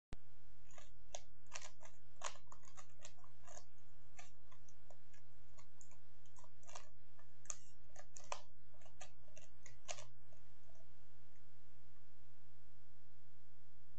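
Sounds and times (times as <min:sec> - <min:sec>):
low hum: 0:00.2 - 0:13.9
puzzle cube clicking: 0:00.7 - 0:10.2.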